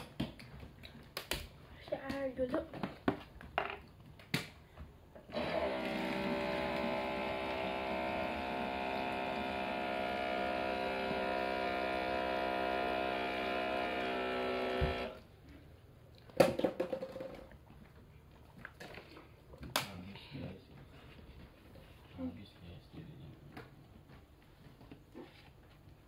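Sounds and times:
electrical hum: 0:05.3 - 0:15.7.

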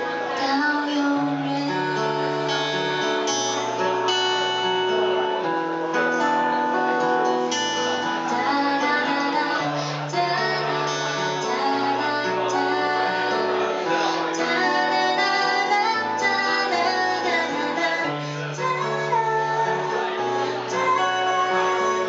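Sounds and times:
woman singing: 0:00.0 - 0:03.3, 0:07.7 - 0:22.0
acoustic guitar strumming: 0:00.0 - 0:22.0.

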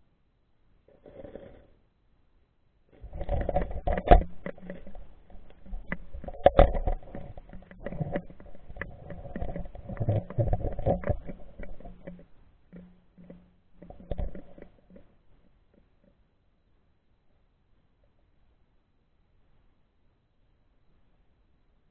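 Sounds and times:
underwater knocks against camera housing: 0:03.0 - 0:15.1.

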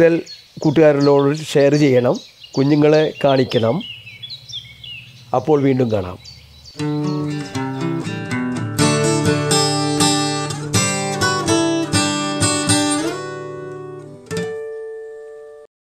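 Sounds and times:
acoustic guitar strumming: 0:06.8 - 0:15.6.

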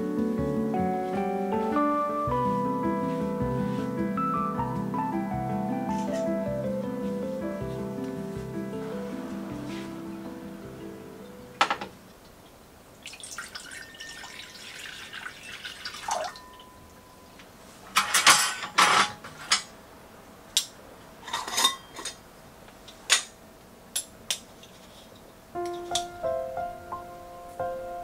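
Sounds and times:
water running from tap: 0:13.0 - 0:16.7
dishes and utensils clinking: 0:17.9 - 0:19.7, 0:21.2 - 0:22.2.

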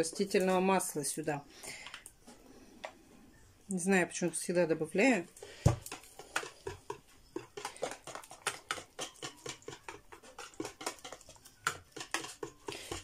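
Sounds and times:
whisk beating batter: 0:05.4 - 0:13.0.

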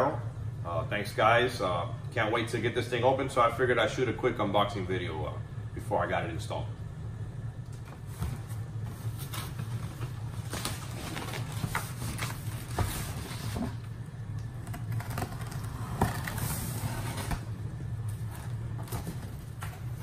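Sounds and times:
steady low hum: 0:00.0 - 0:20.0
packing tape being slit: 0:14.3 - 0:17.5.

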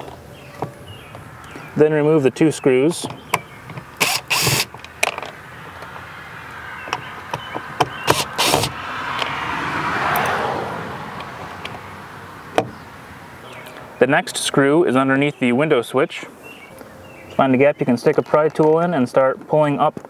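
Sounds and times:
passing vehicle: 0:04.6 - 0:17.4.

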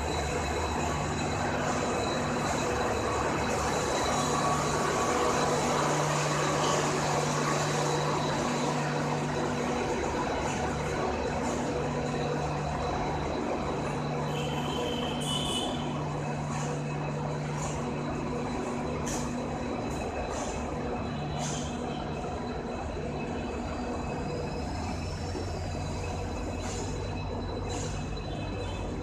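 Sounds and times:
train wheels rumbling and rattling: 0:00.0 - 0:29.0.

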